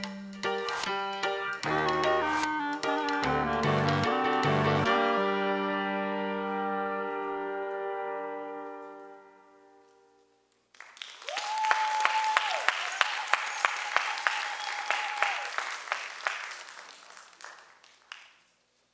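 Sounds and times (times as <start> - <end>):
held brass chord: 0.5 - 10.3
audience applauding: 10.7 - 18.6
high-pitched cheer: 11.0 - 16.3.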